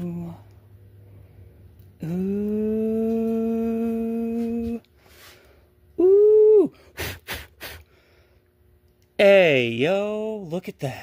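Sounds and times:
man humming in admiration: 0.0s - 0.5s, 2.0s - 4.9s, 6.0s - 7.8s.

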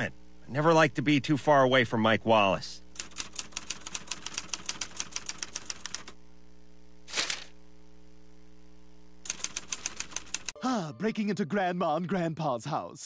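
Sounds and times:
typewriter keys clacking: 3.0s - 6.1s, 9.3s - 10.6s
newspaper rustling: 7.1s - 7.6s.

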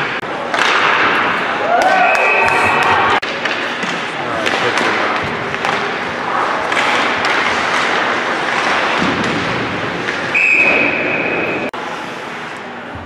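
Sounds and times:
indoor arena noise: 0.0s - 13.0s
referee's whistle: 10.3s - 11.7s.

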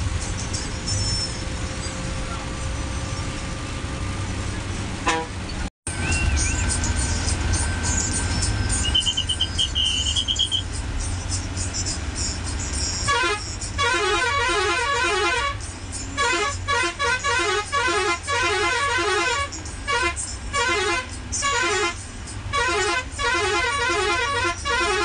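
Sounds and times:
bus engine drone: 0.0s - 25.0s
musical air horn: 5.0s - 5.4s, 13.0s - 15.6s, 16.2s - 25.0s
high chirping notes: 5.5s - 13.8s.

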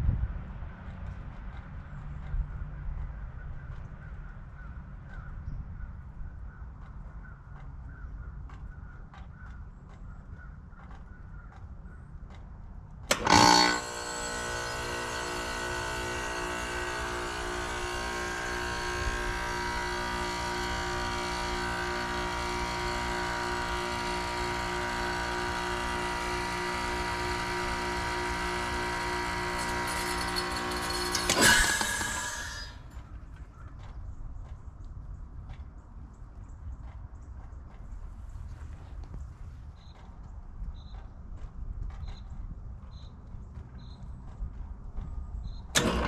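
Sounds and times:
heat pump hum and whine: 12.5s - 33.8s, 44.0s - 46.0s.

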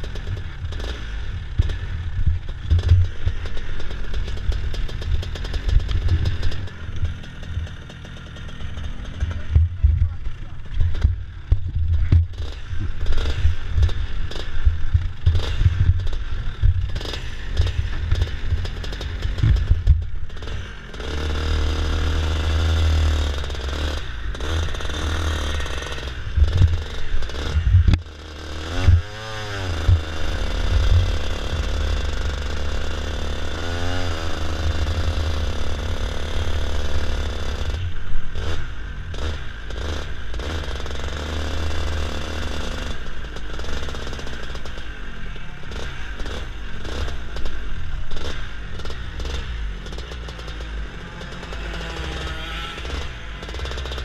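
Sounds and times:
kart engine revving: 0.0s - 54.0s
wind rumble on microphone: 27.5s - 28.0s.

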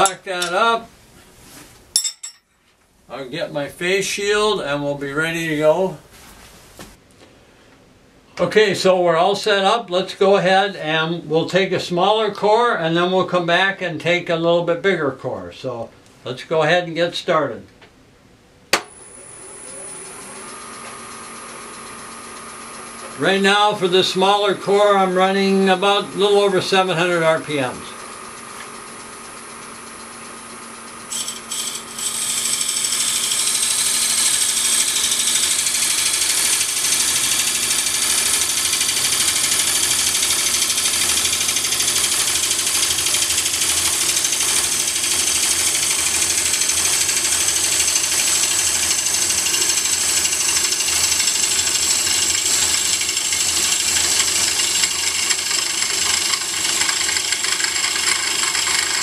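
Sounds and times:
lathe running: 18.8s - 59.0s
knife cutting spinning wood: 31.1s - 59.0s.

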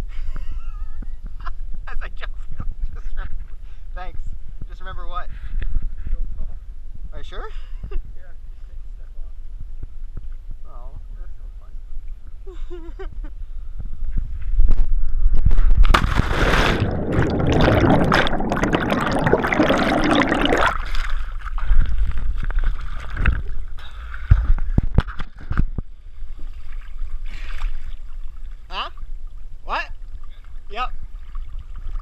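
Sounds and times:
air rushing over microphone: 13.8s - 21.0s
loud splash into water: 15.8s - 21.2s
water sloshing and splashing: 15.8s - 25.5s, 26.2s - 32.0s
muffled underwater bubbling: 16.2s - 21.1s.

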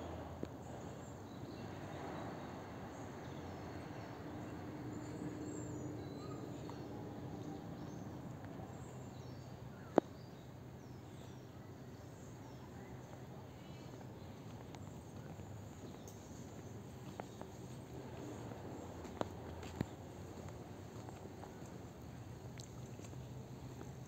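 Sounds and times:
low background noise: 0.0s - 24.0s
faint bird chirps: 4.9s - 8.0s.

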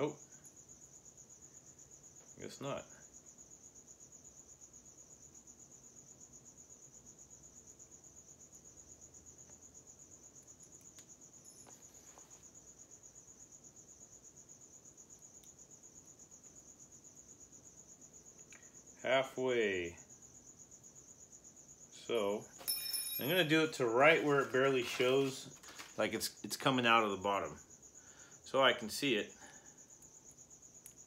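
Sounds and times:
crickets chirping: 0.0s - 31.0s
faint clicks: 18.3s - 18.7s.

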